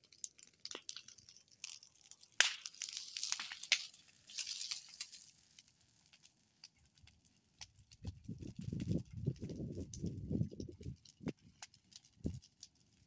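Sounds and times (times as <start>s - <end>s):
dry bamboo crackling and snapping: 0.0s - 13.0s
dry rustling hiss: 2.8s - 5.4s.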